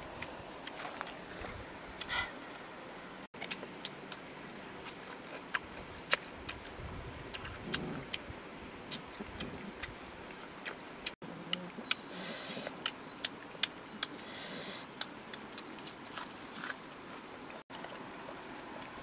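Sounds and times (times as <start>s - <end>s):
puppies chewing and lapping: 14.8s - 19.0s.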